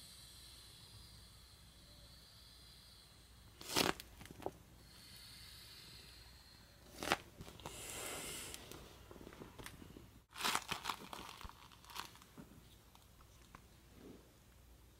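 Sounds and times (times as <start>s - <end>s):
air hissing out: 0.0s - 3.6s, 7.6s - 8.8s
vinyl crinkling and crackling: 8.6s - 13.7s.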